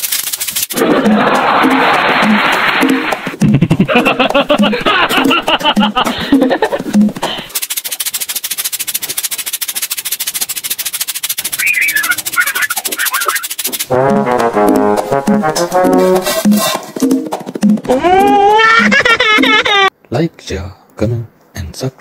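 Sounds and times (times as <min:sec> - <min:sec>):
fast rattle of clicks: 0:07.5 - 0:13.9
high squeaks: 0:11.4 - 0:13.8
trombone-like brass notes: 0:13.9 - 0:16.7.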